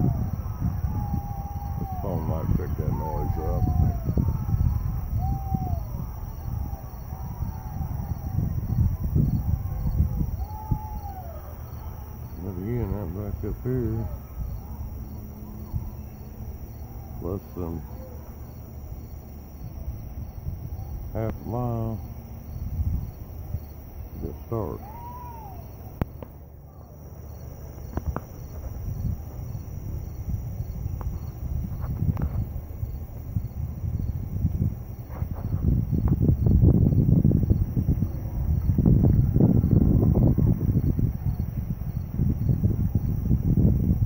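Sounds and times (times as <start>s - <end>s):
insects chirping: 0.0s - 44.0s
steady low rumble: 0.0s - 44.0s
high-pitched insect drone: 8.0s - 26.1s
distant wavering pitched sound: 9.5s - 29.7s
faint clicks: 26.0s - 26.4s.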